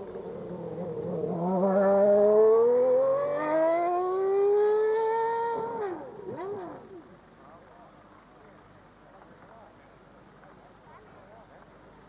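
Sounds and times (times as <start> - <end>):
racing car engine accelerating: 0.3 - 7.0.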